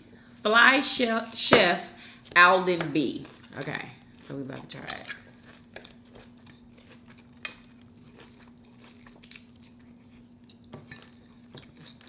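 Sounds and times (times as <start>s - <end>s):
crunching and chewing food: 3.0s - 12.0s.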